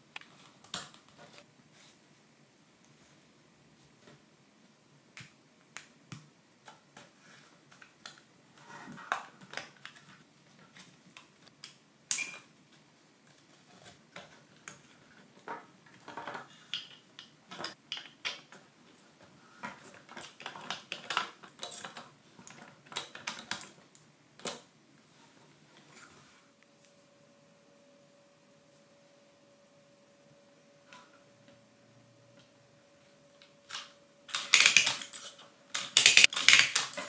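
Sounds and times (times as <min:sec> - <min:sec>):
wooden pieces clicking and tapping: 0:34.3 - 0:37.0.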